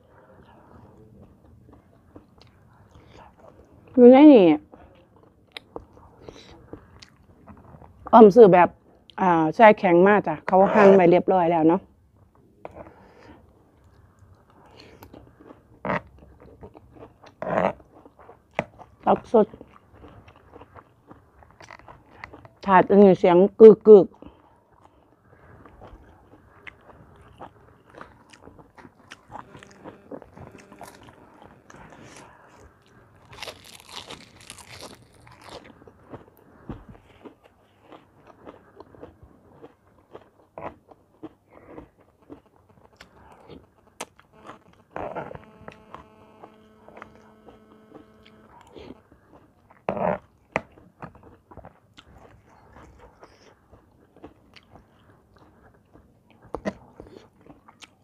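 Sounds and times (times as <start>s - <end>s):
chewing and crunching: 0.0s - 8.2s, 12.2s - 22.9s, 23.6s - 58.0s
steady pitched tone: 29.1s - 33.3s, 43.2s - 49.0s.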